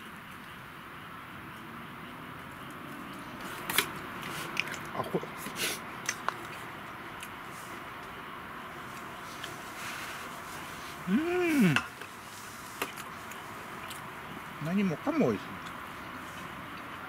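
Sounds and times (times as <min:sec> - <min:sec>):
steady hiss: 0:00.0 - 0:17.0
person chewing: 0:03.7 - 0:07.4, 0:12.9 - 0:14.1.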